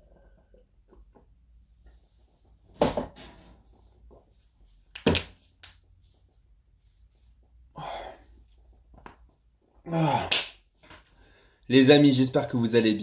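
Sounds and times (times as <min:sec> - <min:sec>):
man breathing out: 0:07.7 - 0:08.4
man sighing: 0:07.7 - 0:08.4, 0:09.8 - 0:10.5.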